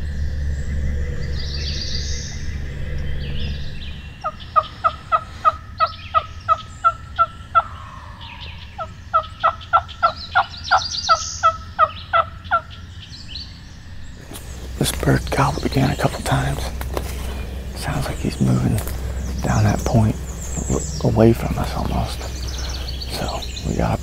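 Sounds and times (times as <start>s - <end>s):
turkey call yelps: 4.2s - 12.8s.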